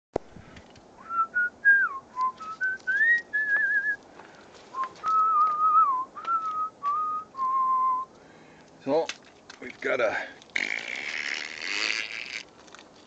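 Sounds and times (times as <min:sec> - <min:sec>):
person whistling a tune: 0:01.0 - 0:04.0, 0:04.8 - 0:08.1.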